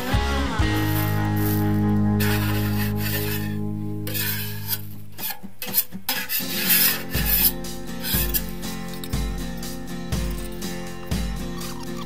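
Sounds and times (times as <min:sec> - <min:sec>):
background music: 0:00.0 - 0:05.2, 0:06.5 - 0:12.0
scraper blade scraping paint: 0:00.8 - 0:09.2.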